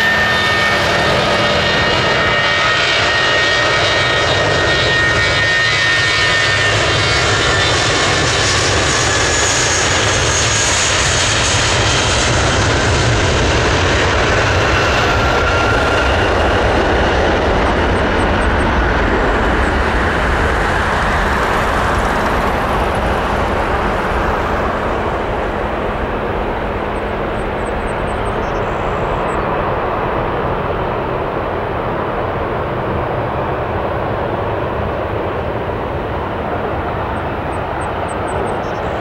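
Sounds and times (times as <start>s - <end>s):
jet airliner taking off: 0.0s - 39.0s.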